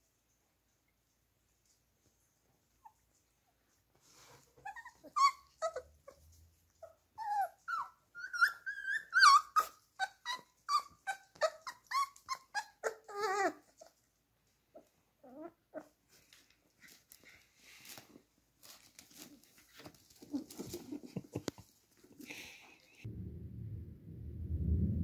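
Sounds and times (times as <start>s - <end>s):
puppies yelping and squealing: 4.6s - 13.9s.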